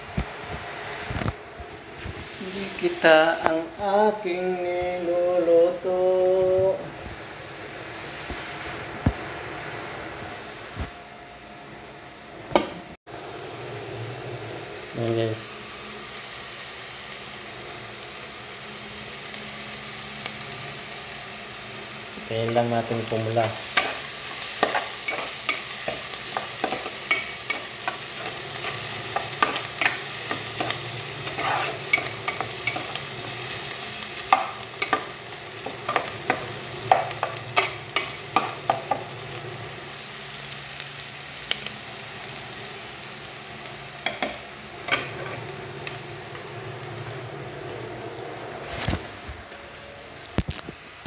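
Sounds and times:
food sizzling in hot oil: 13.1 - 49.2
metal spoon scraping a pot: 30.6 - 33.0.

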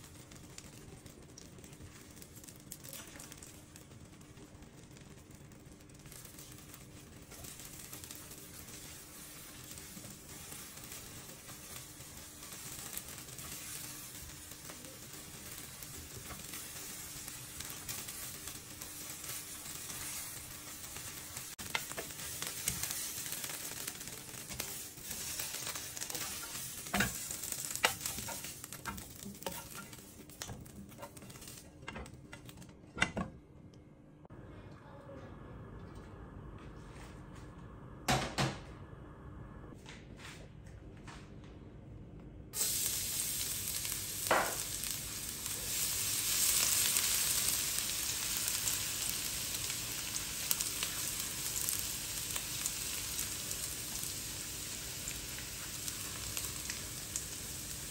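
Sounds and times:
eggs sizzling in frying pan: 0.0 - 32.6, 42.6 - 57.9
spatula tapping and scraping pan: 25.7 - 33.2.

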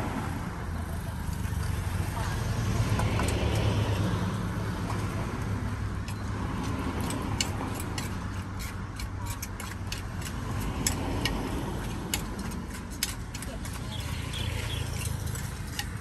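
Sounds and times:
low rumble of street traffic: 0.0 - 16.0
utensils clicking and tapping: 2.9 - 4.0, 5.9 - 16.0.

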